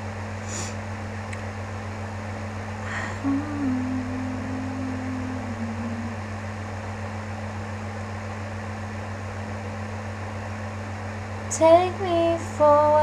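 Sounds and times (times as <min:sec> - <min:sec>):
low hum and hiss: 0:00.0 - 0:13.0
woman humming a held note: 0:02.9 - 0:06.4.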